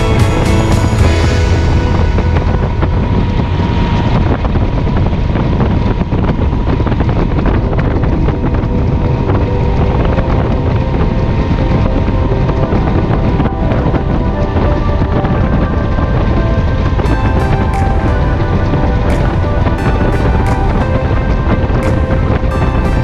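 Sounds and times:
motorcycle engine running steadily: 0.0 - 6.5
wind rushing over microphone: 0.0 - 23.0.

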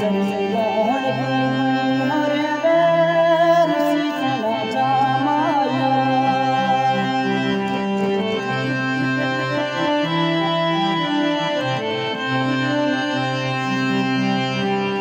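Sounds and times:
instrumental folk melody: 0.0 - 15.0.

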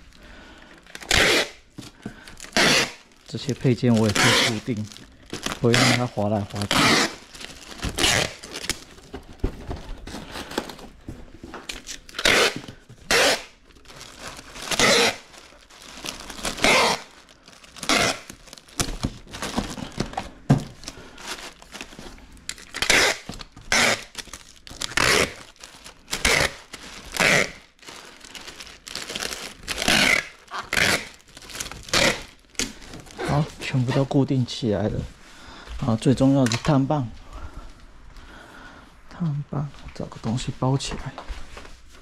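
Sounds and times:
tape tearing and plastic crinkling: 0.8 - 34.1.

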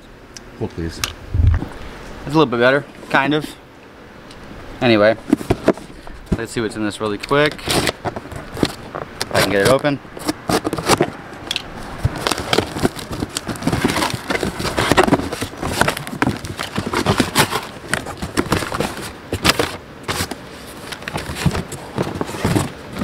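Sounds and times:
cardboard and tape ripping: 12.1 - 20.4.

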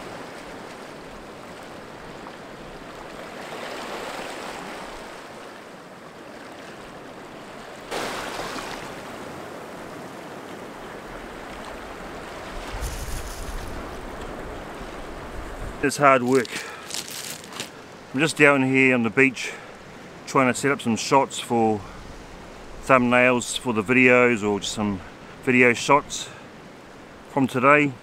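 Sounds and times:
sea waves washing over rocks: 0.0 - 18.4
wind rumble on microphone: 10.8 - 15.8.

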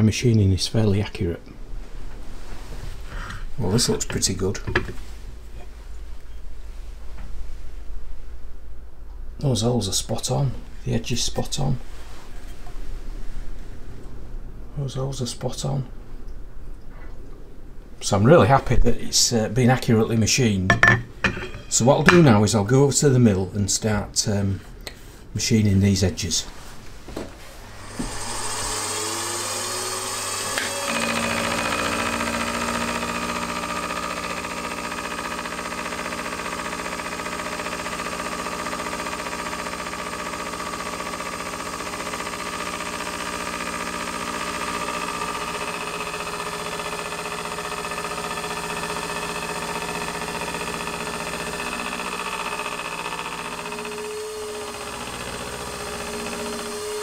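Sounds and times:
milling machine spindle whine: 27.6 - 57.0
cutter cutting metal: 27.8 - 57.0.

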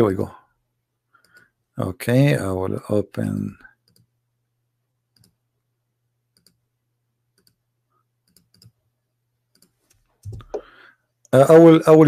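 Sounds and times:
computer clicks: 8.2 - 8.8, 9.5 - 10.7.

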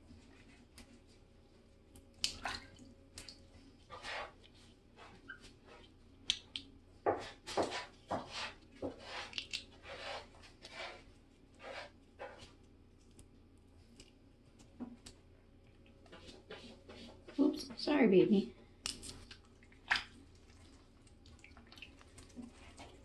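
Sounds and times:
small water splashes: 2.2 - 3.4, 18.9 - 23.0.

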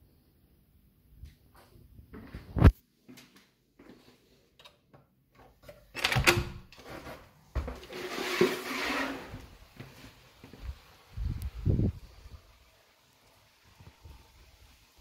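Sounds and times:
door handle and latch clattering: 5.9 - 6.7
rushing noise of door opening: 6.0 - 6.7.

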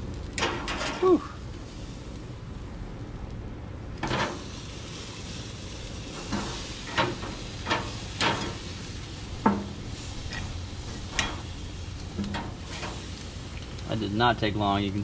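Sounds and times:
fish sizzling on grill: 0.0 - 15.0
metal spatula scraping grill grate: 0.4 - 1.0, 4.0 - 13.5.

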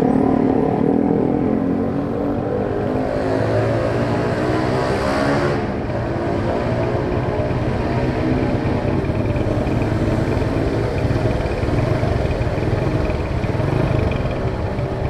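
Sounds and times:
rush of engine noise: 0.0 - 15.0
motorcycle engines idling: 5.7 - 15.0.

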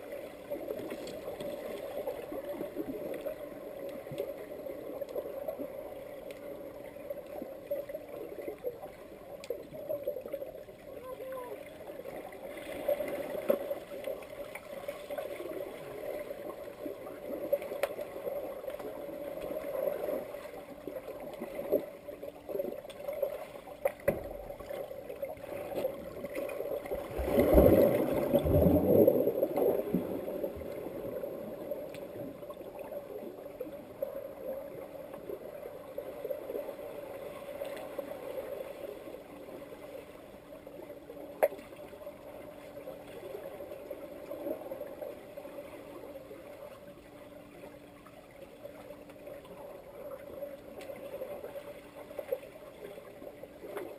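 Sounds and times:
churning rush of water and bubbles: 0.0 - 6.1, 11.6 - 39.0
underwater hum: 0.0 - 53.9
underwater clicks and knocks: 23.8 - 24.6.

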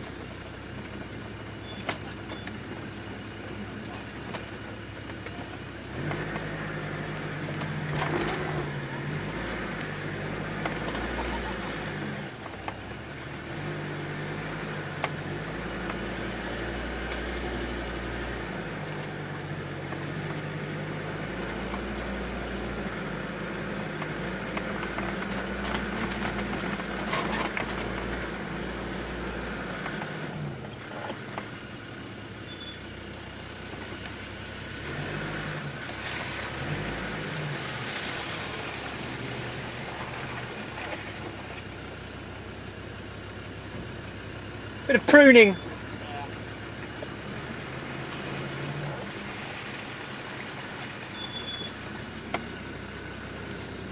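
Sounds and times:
diesel engine from inside cabin: 0.0 - 53.9.

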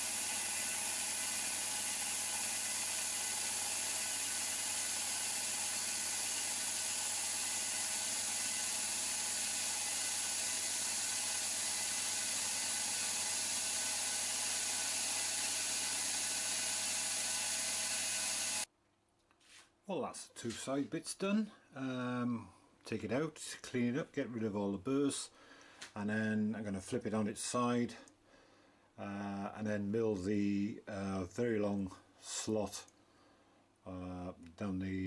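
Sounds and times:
end mill cutting metal: 0.0 - 18.7
milling machine hum: 0.0 - 18.7.

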